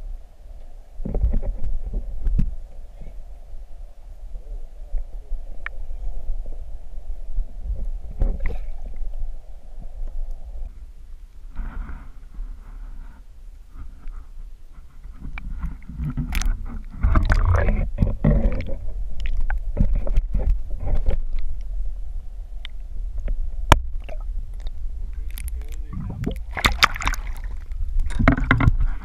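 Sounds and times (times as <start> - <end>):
muffled underwater sloshing: 0.0 - 29.0
low rumble: 14.6 - 29.0.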